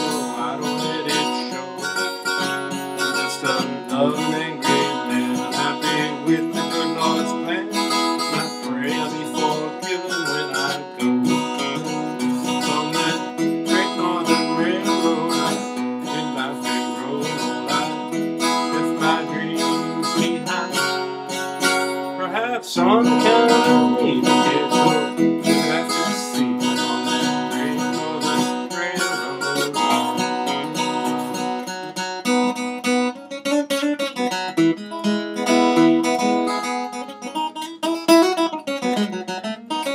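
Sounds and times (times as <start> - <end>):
acoustic guitar strumming: 0.0 - 39.9
melody with sliding notes: 22.8 - 25.8.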